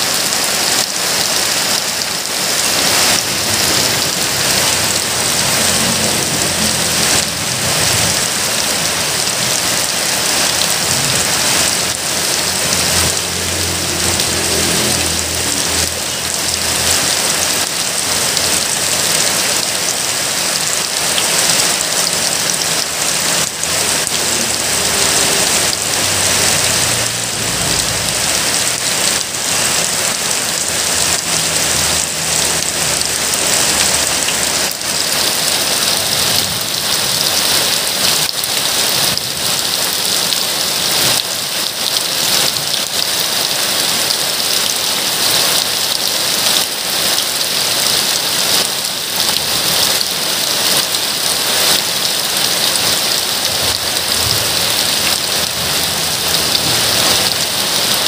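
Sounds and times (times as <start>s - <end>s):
heavy rain on stony ground: 0.0s - 58.0s.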